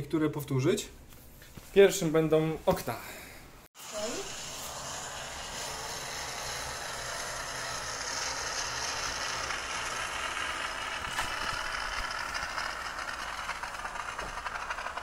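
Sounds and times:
steam cleaner hissing: 3.8s - 14.0s
fast fine rattle: 5.0s - 15.0s.

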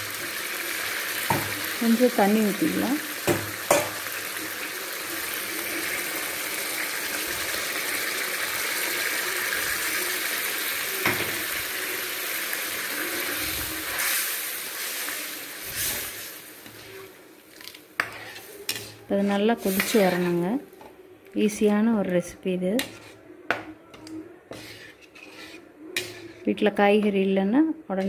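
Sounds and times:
gravy bubbling and sizzling: 0.0s - 20.8s
spoon scraping through gravy: 12.9s - 20.5s, 22.8s - 23.3s, 24.0s - 26.6s.

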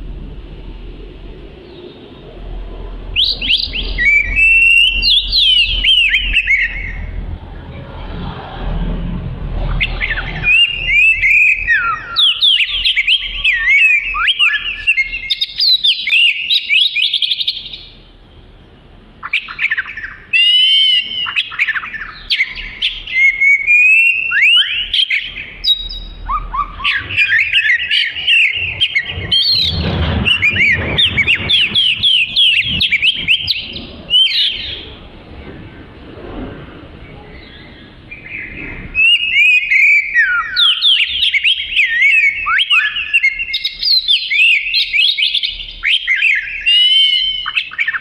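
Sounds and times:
bird singing whistles: 3.1s - 7.2s, 9.7s - 18.0s, 19.2s - 34.9s, 37.4s - 48.0s.

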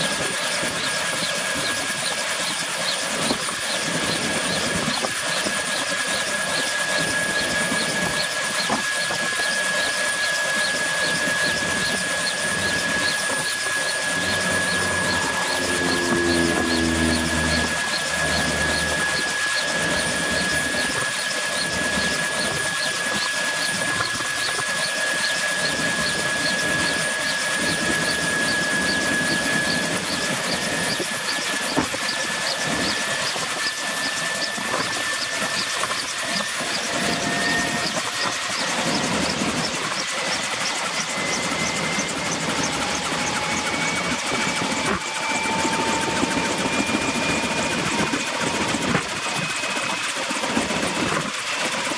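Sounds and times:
helicopter engine whine: 0.0s - 51.9s
lower whine: 0.0s - 51.9s
rushing noise of rotors: 10.7s - 22.8s
faint pulsing: 10.8s - 20.9s.

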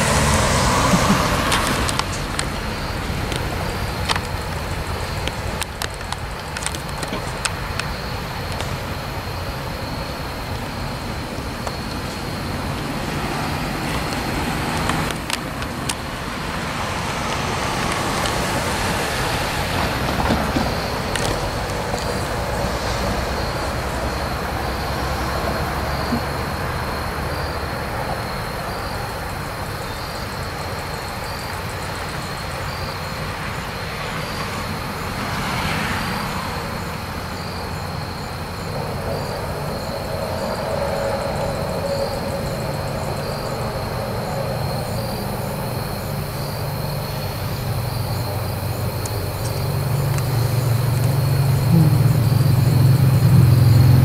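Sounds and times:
train wheels running on track: 0.0s - 26.6s
diesel locomotive engine rumbling: 0.0s - 35.3s, 36.2s - 54.0s.

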